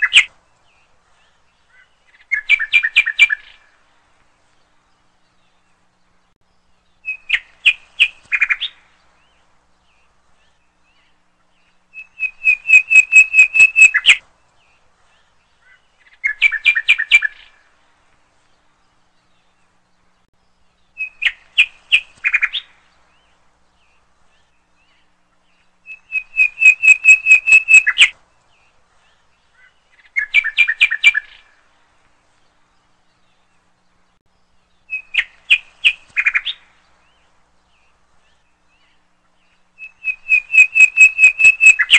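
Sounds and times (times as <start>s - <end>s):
bird chirping high notes: 25.9s - 28.1s.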